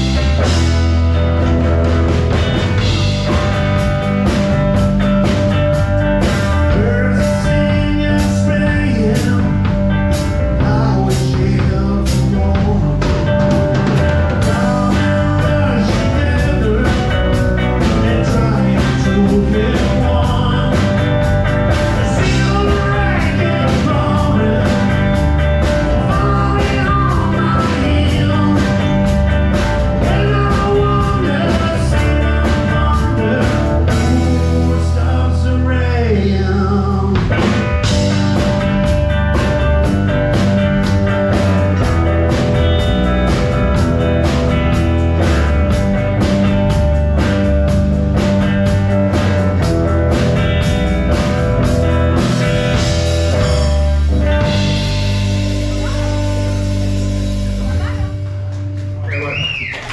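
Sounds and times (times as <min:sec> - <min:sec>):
drum kit beat: 0:00.0 - 0:35.4, 0:36.1 - 0:59.9
bass guitar: 0:00.0 - 0:59.9
electric guitar: 0:00.0 - 0:59.9
person singing: 0:06.6 - 0:09.8, 0:10.5 - 0:13.5, 0:14.3 - 0:21.0, 0:21.9 - 0:25.2, 0:25.8 - 0:29.2, 0:30.0 - 0:37.6.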